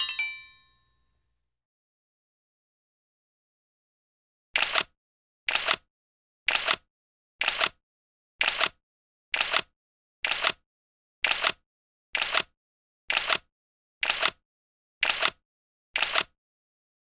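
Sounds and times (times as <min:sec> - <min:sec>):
camera shutter click: 0:04.6 - 0:04.9, 0:05.5 - 0:05.8, 0:06.5 - 0:06.8, 0:07.4 - 0:07.8, 0:09.4 - 0:10.6, 0:11.2 - 0:11.6, 0:12.2 - 0:12.5, 0:13.1 - 0:14.4, 0:15.0 - 0:15.4, 0:16.0 - 0:16.3.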